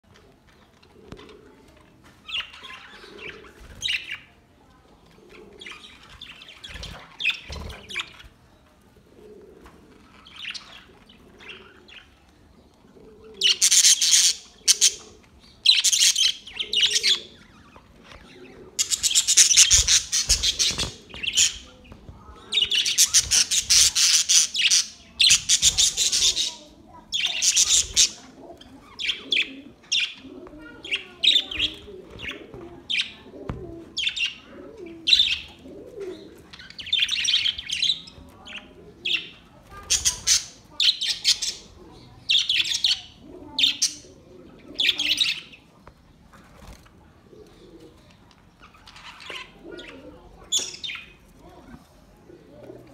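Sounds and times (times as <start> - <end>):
budgerigars chattering and warbling: 13.4 - 21.8, 22.5 - 30.2, 36.6 - 44.1.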